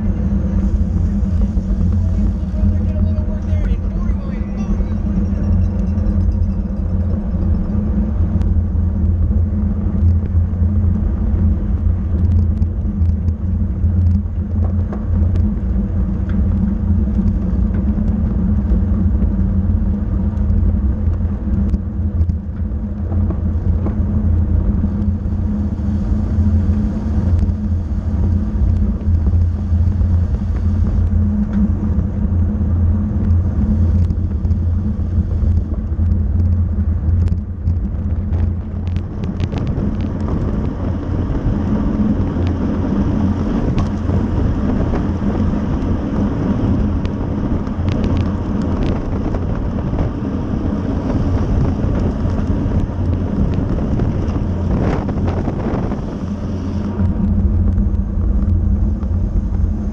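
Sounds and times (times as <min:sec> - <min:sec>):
bicycle tyre noise: 0:00.0 - 0:59.9
wind rushing over microphone: 0:00.0 - 0:59.9.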